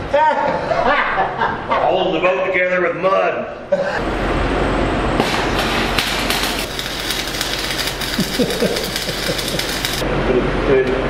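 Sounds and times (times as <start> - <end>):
low electrical hum: 0.0 - 11.0
welding arc crackling and sizzling: 5.2 - 10.0.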